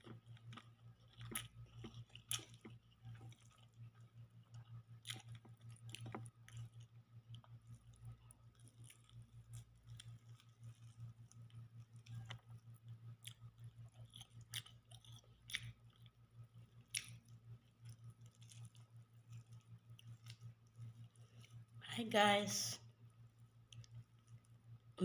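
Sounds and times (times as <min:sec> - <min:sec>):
person chewing food: 0:00.0 - 0:21.8, 0:23.4 - 0:24.7
steady low hum: 0:00.0 - 0:25.0.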